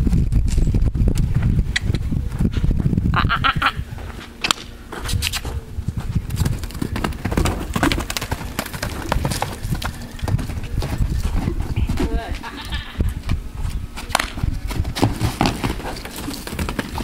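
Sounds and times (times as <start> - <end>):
horse hooves on soft dirt: 4.0 - 17.0.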